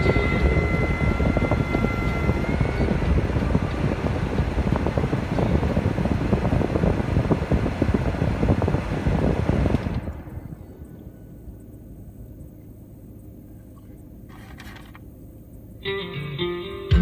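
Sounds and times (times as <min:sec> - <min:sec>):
wind and road noise in car: 0:00.0 - 0:15.9.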